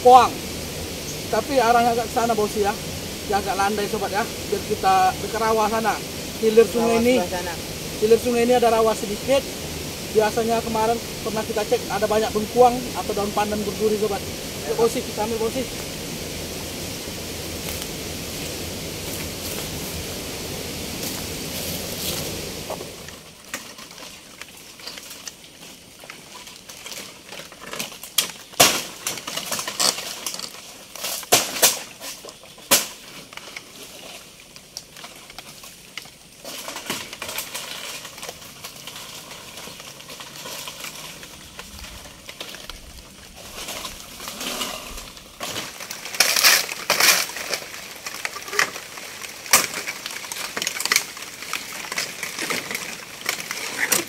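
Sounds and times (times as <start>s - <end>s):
steady faint hiss: 0.0s - 54.0s
twigs and leaves snapping: 16.9s - 54.0s.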